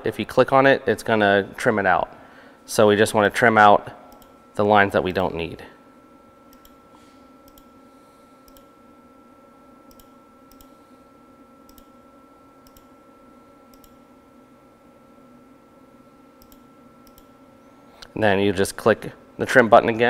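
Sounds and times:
low electrical hum: 0:00.0 - 0:20.0
computer mouse clicks: 0:06.5 - 0:06.8, 0:07.5 - 0:07.7, 0:08.5 - 0:08.7, 0:09.9 - 0:10.7, 0:11.7 - 0:11.9, 0:12.6 - 0:12.9, 0:13.7 - 0:14.0, 0:16.4 - 0:17.3.

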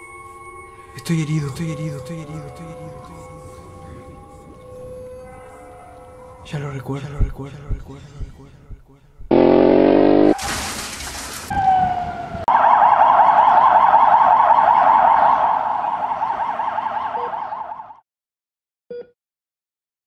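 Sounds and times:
ambulance siren warbling: 0:01.6 - 0:06.5, 0:11.5 - 0:18.0
short falling tone: 0:09.2 - 0:10.4
burst of harsh noise: 0:09.3 - 0:10.8.

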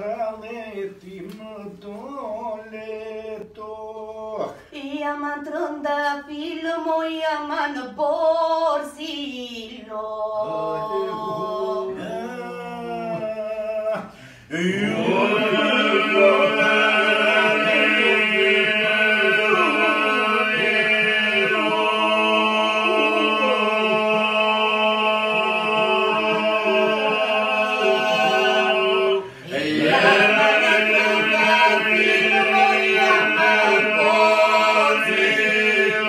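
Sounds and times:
group singing held drone: 0:10.4 - 0:36.0.

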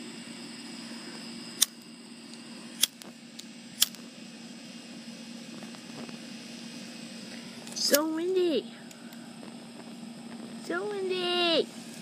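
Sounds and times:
steady background hum: 0:00.0 - 0:12.0
lighter clicking: 0:01.6 - 0:04.0.

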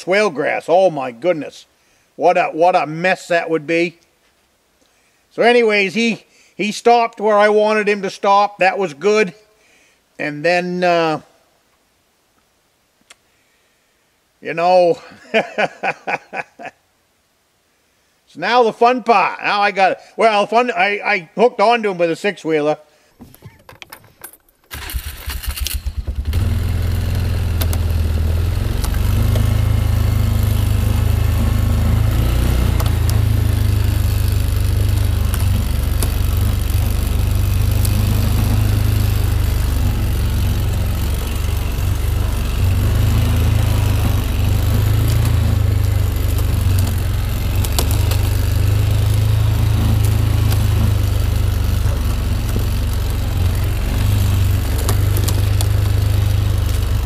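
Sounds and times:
atv engine droning: 0:24.7 - 0:57.0.

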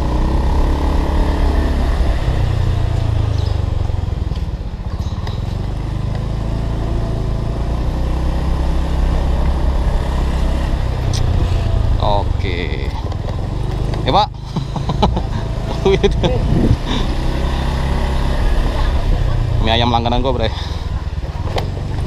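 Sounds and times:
scooter engine running: 0:00.0 - 0:22.0.

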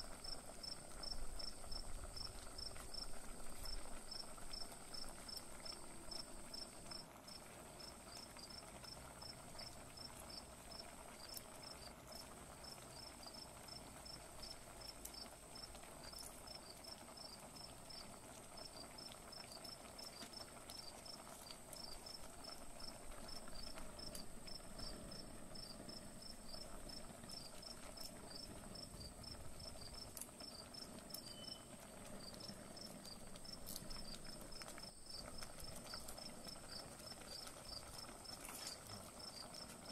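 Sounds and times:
pot bubbling at the boil: 0:00.0 - 0:39.9
cricket chirping: 0:00.2 - 0:18.0, 0:18.6 - 0:39.9
faint high whine: 0:31.1 - 0:31.9.

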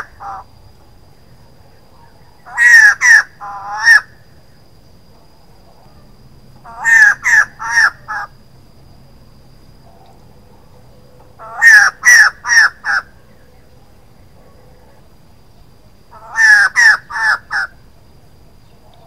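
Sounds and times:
laughingthrush calling: 0:00.0 - 0:00.5, 0:01.6 - 0:04.2, 0:05.8 - 0:08.4, 0:11.4 - 0:15.1, 0:16.1 - 0:17.8.

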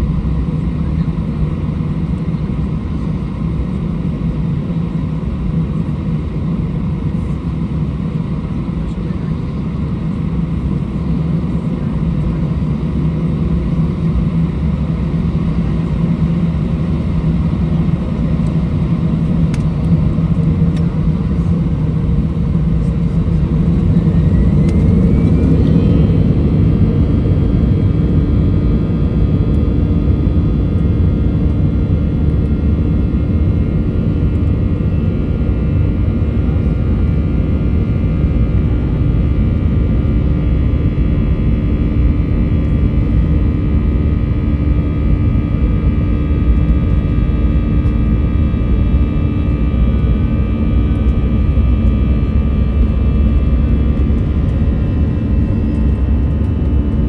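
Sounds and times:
jet engines rumbling in cabin: 0:00.0 - 0:57.0
engine whine rising in pitch: 0:22.1 - 0:57.0.

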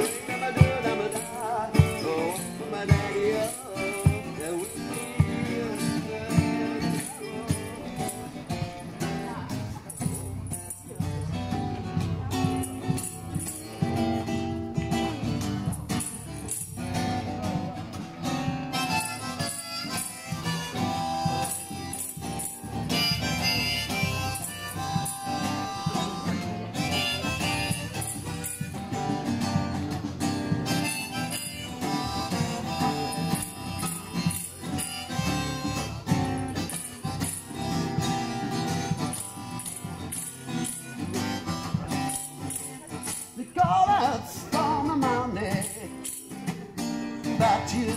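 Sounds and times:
strummed guitar: 0:00.0 - 0:47.9
harmonica: 0:18.4 - 0:42.7.

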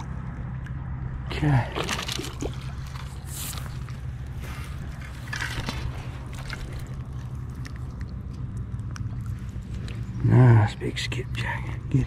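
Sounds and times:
steady low hum: 0:00.0 - 0:12.0
fish splashing in water: 0:01.7 - 0:04.3.

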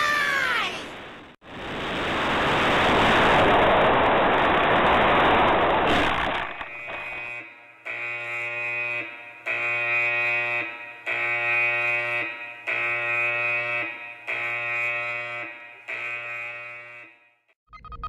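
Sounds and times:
alarm klaxon blasts: 0:06.1 - 0:17.6.

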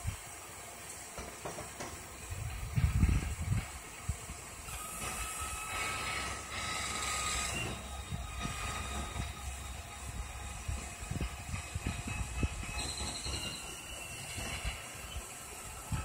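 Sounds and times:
hiss: 0:00.0 - 0:16.0
truck engine running: 0:04.7 - 0:13.0.

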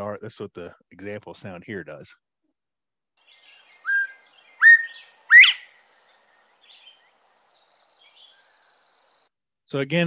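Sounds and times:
faint bird chirps: 0:03.2 - 0:09.3
bird whistling call: 0:03.3 - 0:06.1.

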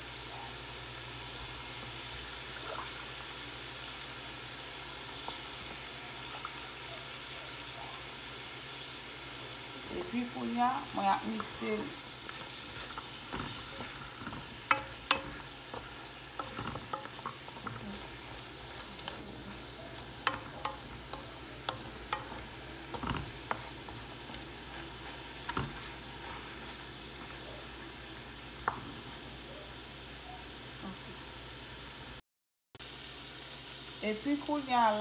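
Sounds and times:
meat and vegetables sizzling: 0:00.0 - 0:32.2, 0:32.8 - 0:35.0
wooden spoon knocking on pot: 0:12.6 - 0:26.4.

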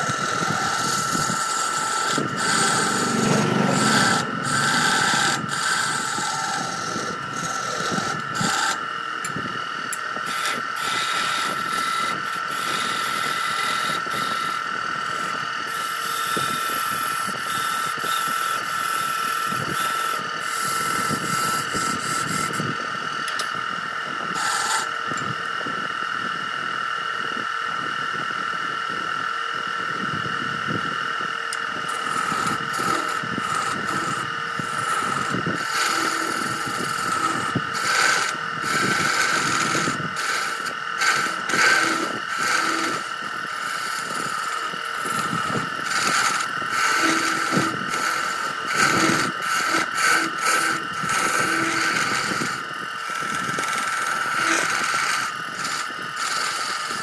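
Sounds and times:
turning tool scraping wood: 0:00.0 - 0:23.5, 0:24.3 - 0:24.9, 0:31.5 - 0:57.0
wood lathe whine: 0:00.0 - 0:57.0.

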